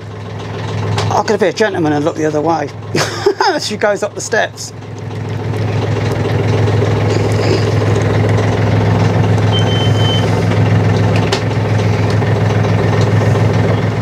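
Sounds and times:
diesel engine idling: 0.0s - 14.0s
high beep: 9.5s - 10.3s.

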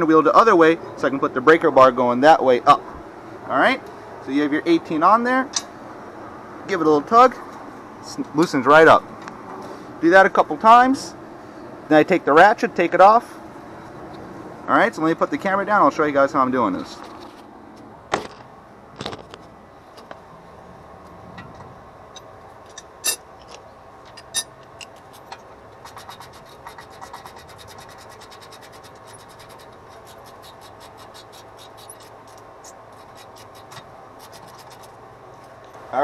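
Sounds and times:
tools being handled: 22.2s - 27.6s.

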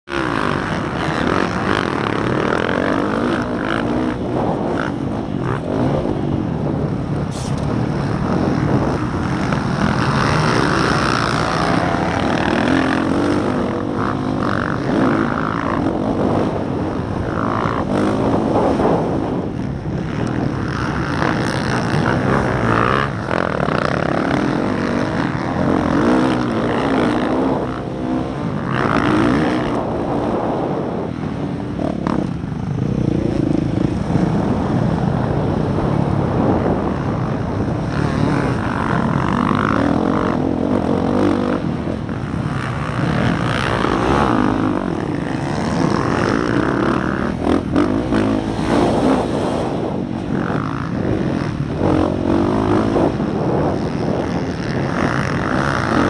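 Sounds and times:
motocross bike engine revving: 0.0s - 56.0s
other race bikes running: 0.0s - 56.0s.

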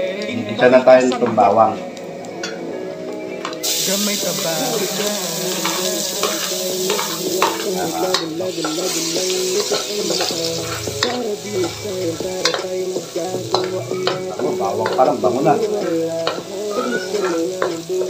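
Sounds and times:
garlic sizzling in a wok: 3.6s - 18.0s
spatula scraping a pan: 5.0s - 18.0s.

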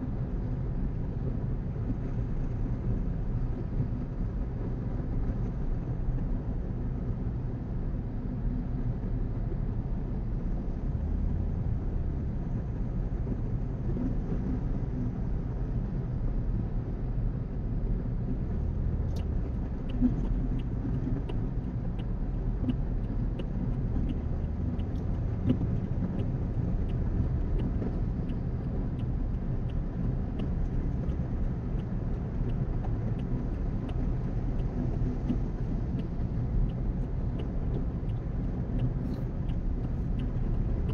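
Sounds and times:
car road noise rumble: 0.0s - 40.9s
turn signal ticking: 18.3s - 40.9s.

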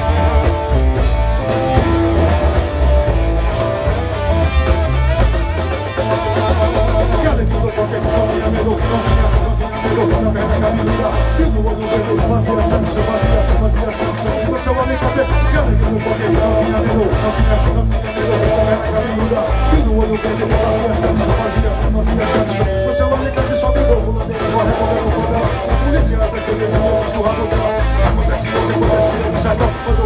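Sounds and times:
congas: 0.0s - 30.0s
drum kit: 0.0s - 30.0s
electric guitars: 0.0s - 30.0s
live band playing: 0.0s - 30.0s
pulsing bass beat: 0.0s - 30.0s.

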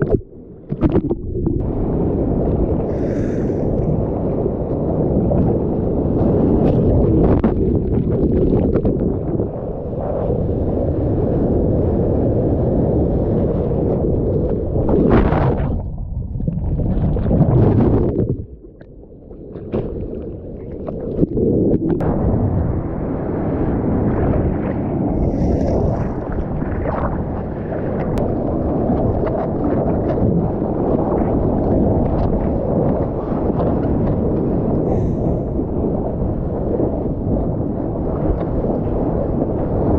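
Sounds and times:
wind buffeting microphone: 0.0s - 39.9s
surf rushing and splashing: 19.6s - 39.9s.

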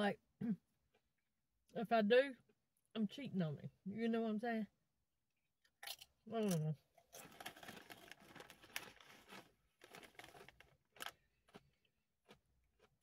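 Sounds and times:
foil chip bag crinkling: 7.1s - 12.4s.

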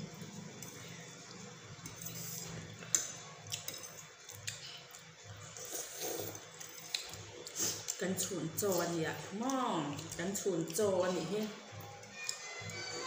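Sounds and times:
wet chewing and slurping: 0.4s - 8.0s.

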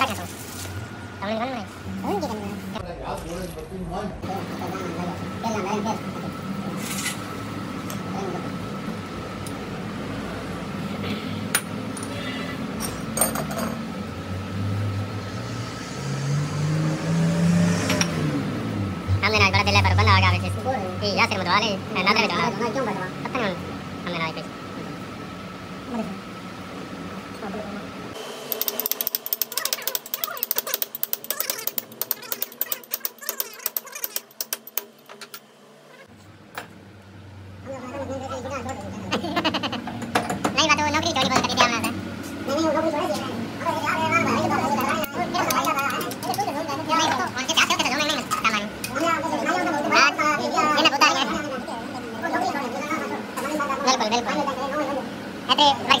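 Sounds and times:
metallic clicks of hand tools: 28.5s - 35.4s.

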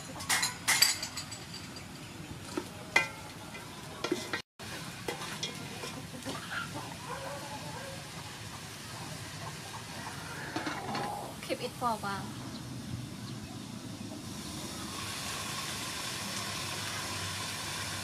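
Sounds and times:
ladle clinking and scraping pot: 0.0s - 4.4s, 5.0s - 6.4s
meat sizzling in a pot: 4.0s - 10.0s, 14.2s - 18.0s.

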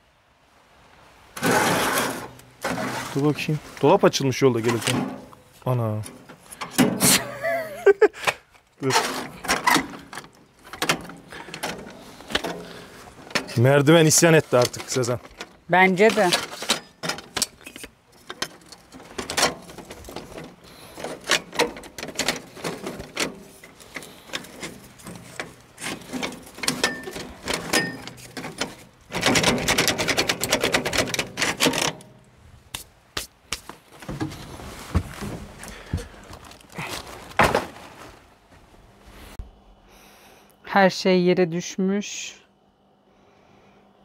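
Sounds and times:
aluminium ladder clicking and clattering: 8.8s - 32.2s.

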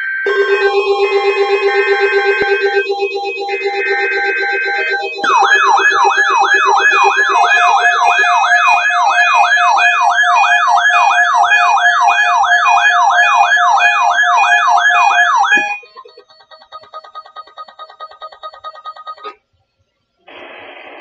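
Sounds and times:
rising siren-like alarm sweep: 0.0s - 15.9s
steady alarm tone: 0.2s - 17.1s
warbling tones: 0.3s - 12.7s.

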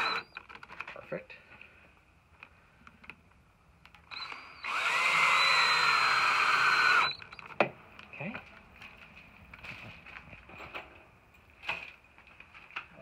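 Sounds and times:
cordless drill driving screw: 0.0s - 0.4s, 4.0s - 7.4s.

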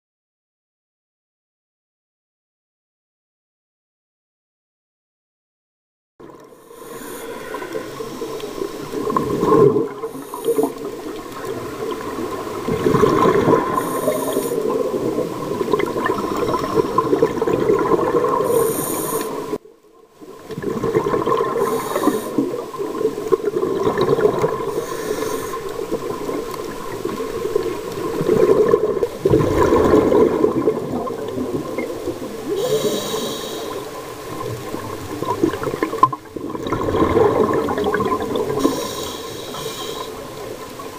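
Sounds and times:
scuba breathing underwater: 6.3s - 19.6s, 20.6s - 40.9s
regulator bubbles: 7.8s - 19.6s, 20.4s - 24.8s, 25.7s - 32.6s, 34.2s - 38.7s.

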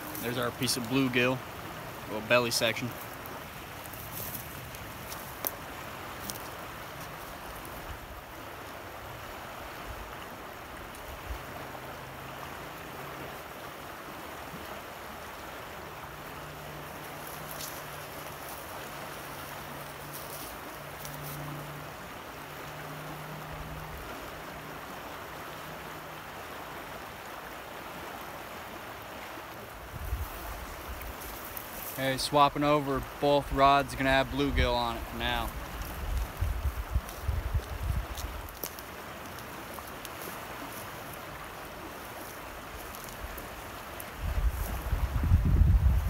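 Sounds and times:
rough river water rushing: 0.0s - 46.0s.

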